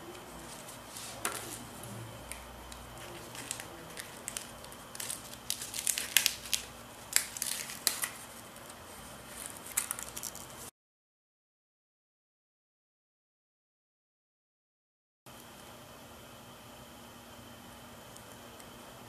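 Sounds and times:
stiff paper crinkling and clicking: 0:02.3 - 0:10.7.

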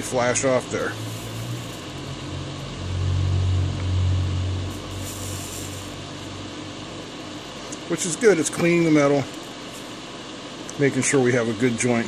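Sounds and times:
electric fan whirring: 0:00.0 - 0:12.0
deep low hum: 0:00.8 - 0:07.6.

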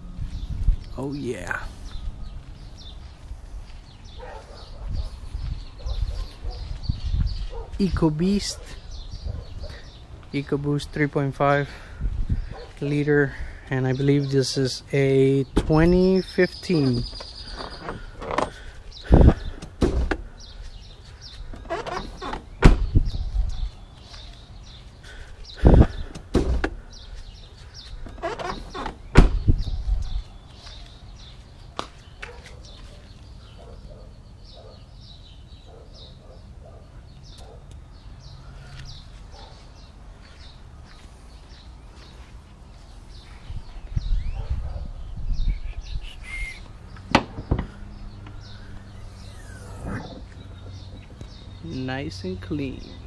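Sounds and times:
small birds chirping: 0:00.0 - 0:53.0
car hood knocks and thumps: 0:19.2 - 0:20.3, 0:21.6 - 0:23.2, 0:25.7 - 0:26.8, 0:28.1 - 0:29.7, 0:47.1 - 0:47.8.

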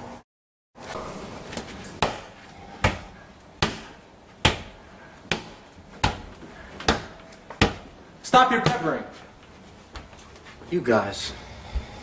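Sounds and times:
ball smacking against wall: 0:02.0 - 0:07.9.

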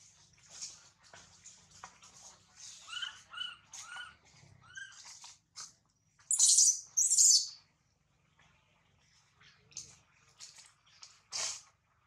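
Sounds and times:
baby monkey calling: 0:06.3 - 0:07.6.

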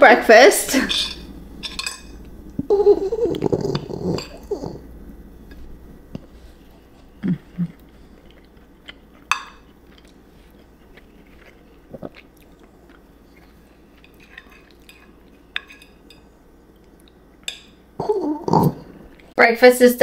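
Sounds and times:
fork clinking against plate: 0:00.9 - 0:02.2, 0:09.2 - 0:10.1, 0:14.0 - 0:16.3
quiet chewing: 0:05.4 - 0:17.5.

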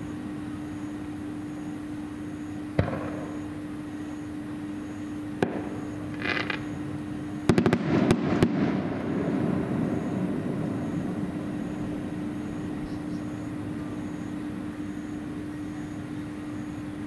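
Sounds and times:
low hum: 0:00.0 - 0:17.0
fireworks bangs: 0:02.8 - 0:03.4, 0:05.4 - 0:06.8, 0:07.5 - 0:12.8
fireworks crackle: 0:05.4 - 0:06.8, 0:07.5 - 0:12.2.

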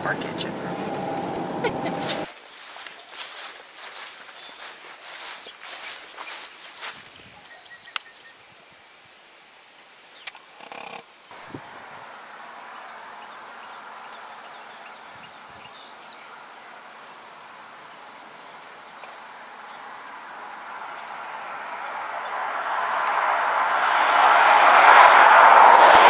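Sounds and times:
vehicle approaching: 0:00.0 - 0:06.3, 0:20.7 - 0:26.0
roadside background noise: 0:00.0 - 0:08.3, 0:09.4 - 0:26.0
high bird chirps: 0:03.0 - 0:08.2.

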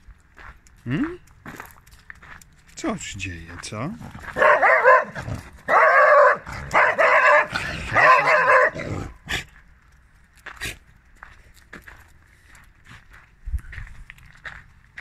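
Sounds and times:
dog barking loudly: 0:04.1 - 0:09.2.

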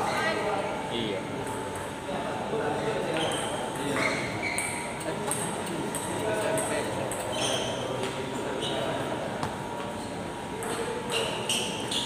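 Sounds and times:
murmur of voices: 0:00.0 - 0:12.0
table tennis balls ticking: 0:04.6 - 0:07.4.

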